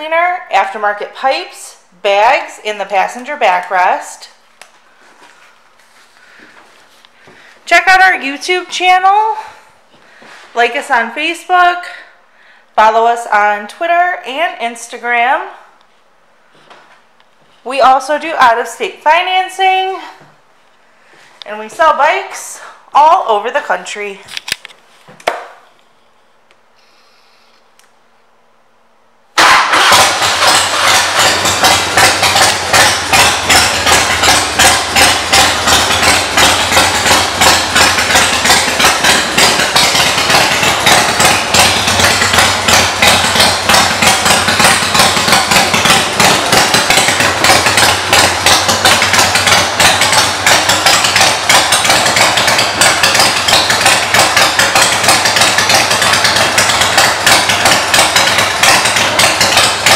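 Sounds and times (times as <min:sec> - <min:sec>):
motorcycle engine starting and idling: 0:00.0 - 0:12.2, 0:29.4 - 0:59.9.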